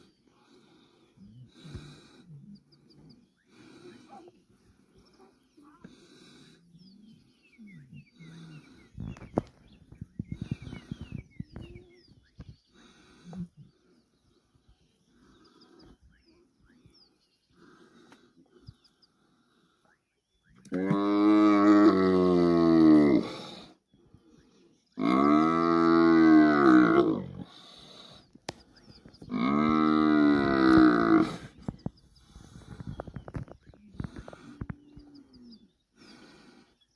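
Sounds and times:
buffalo bellowing: 29.3 - 31.5.

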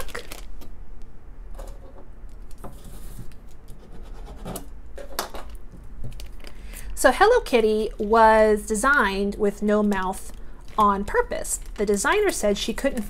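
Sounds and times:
plastic bag crinkling: 0.0 - 0.6, 5.5 - 8.1, 9.0 - 13.0.

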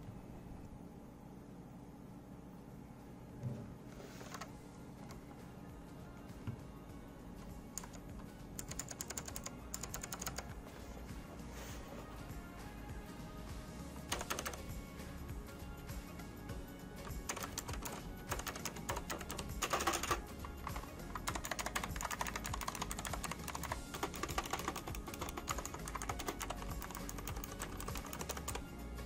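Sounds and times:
background music: 4.1 - 29.0
clicky keyboard typing: 4.2 - 4.5, 7.7 - 10.6, 14.1 - 14.8, 17.0 - 28.7.

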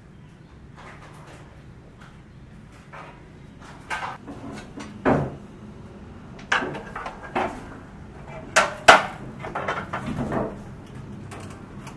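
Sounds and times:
sharp knocks and clanks: 2.8 - 5.4, 6.4 - 11.9.

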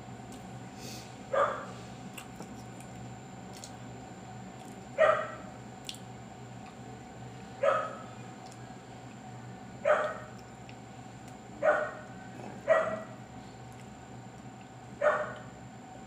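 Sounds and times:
dog barking: 1.3 - 1.7, 5.0 - 5.5, 7.6 - 8.1, 9.8 - 10.3, 11.6 - 13.2, 15.0 - 15.4.

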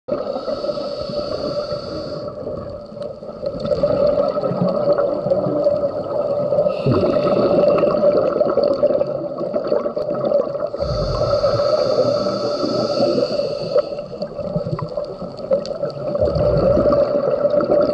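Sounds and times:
regulator hiss on inhale: 0.1 - 2.7, 6.6 - 8.2, 10.8 - 15.2
bubbling exhaled air: 0.1 - 17.9
steady hum: 10.8 - 14.3.

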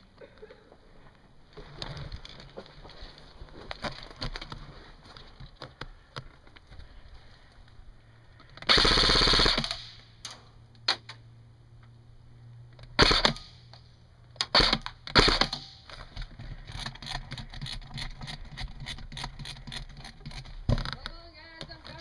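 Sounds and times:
airsoft guns firing: 8.6 - 10.1, 13.0 - 13.6, 14.4 - 15.9.

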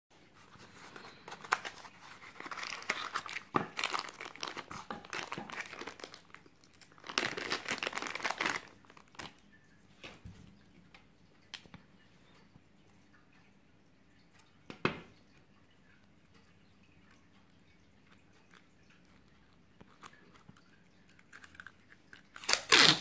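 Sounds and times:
plastic bag crinkling: 0.5 - 9.4, 22.3 - 23.0.

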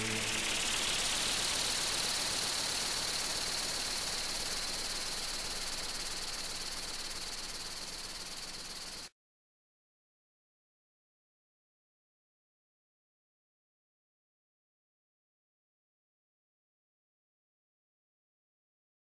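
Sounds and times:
thin high whine: 0.0 - 9.0
steady high hiss: 0.0 - 9.1.

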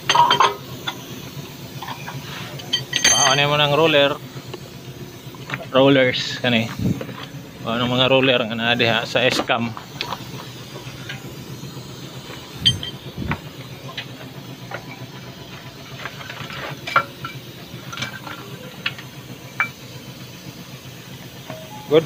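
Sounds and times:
metal brake parts clinking: 0.0 - 1.1, 1.8 - 3.6, 12.3 - 15.0, 15.6 - 19.8.

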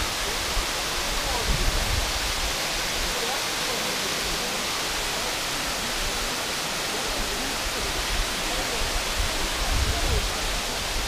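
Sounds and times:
waterfall rushing: 0.0 - 11.0.

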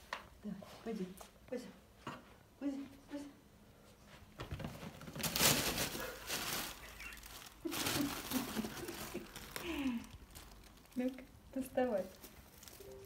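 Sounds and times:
plastic bag rustling: 4.6 - 13.0.

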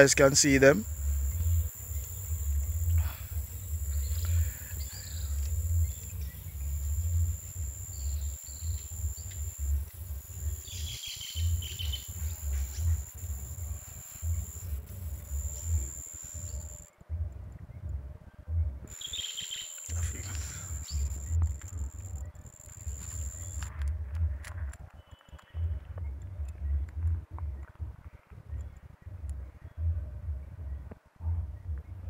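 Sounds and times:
birds chirping: 0.0 - 16.9, 18.9 - 23.7
thin high-pitched whine: 0.0 - 17.0, 18.9 - 23.9
wind rumbling on microphone: 0.0 - 32.0.

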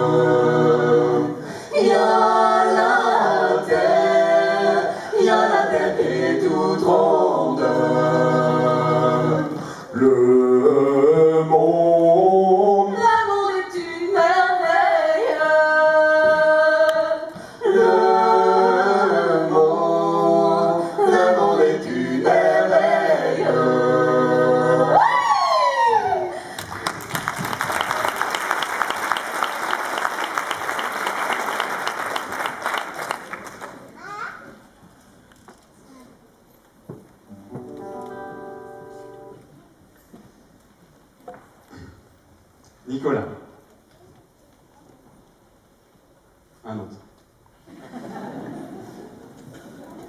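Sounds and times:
group singing a cappella: 0.0 - 25.6.

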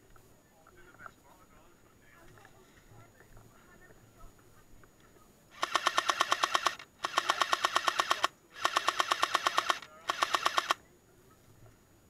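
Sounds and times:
airsoft gun firing full auto: 5.6 - 10.8.

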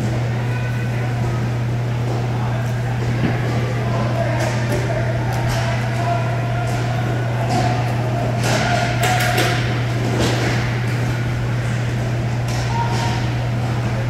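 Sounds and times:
steady low hum: 0.0 - 14.0
hockey sticks and puck knocking: 4.4 - 11.0.

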